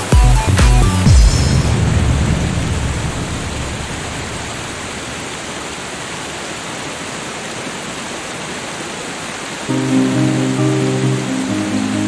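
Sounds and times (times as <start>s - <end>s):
waterfall rushing water: 0.0s - 12.0s
low rumble: 1.0s - 5.5s.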